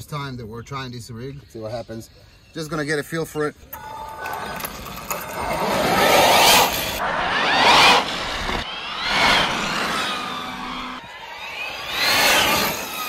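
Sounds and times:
electric motors whining: 3.6 - 13.0.

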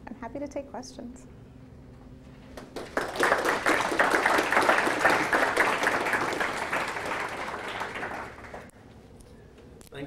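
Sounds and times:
audience applauding: 2.6 - 8.7.

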